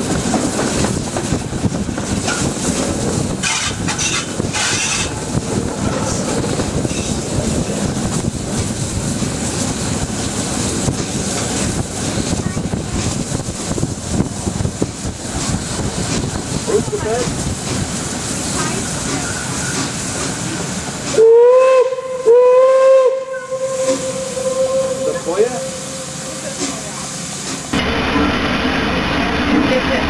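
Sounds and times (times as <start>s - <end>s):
wind across microphone: 0.0s - 19.0s
locomotive wheels rumbling on rails: 0.0s - 30.0s.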